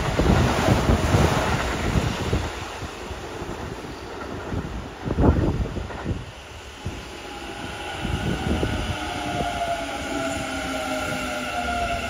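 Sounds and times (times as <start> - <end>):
electric train wheels rumbling: 0.0 - 12.0.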